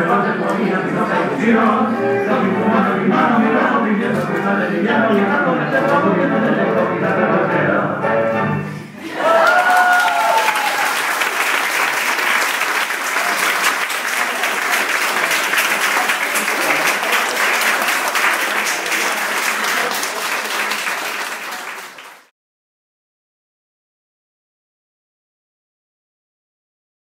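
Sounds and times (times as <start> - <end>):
cheering whoop: 9.0 - 11.2
crowd applauding: 9.0 - 22.3.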